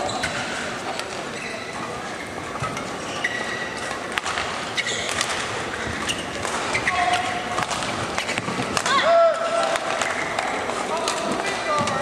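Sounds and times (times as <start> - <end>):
shoes squeaking on court: 0.0 - 8.7.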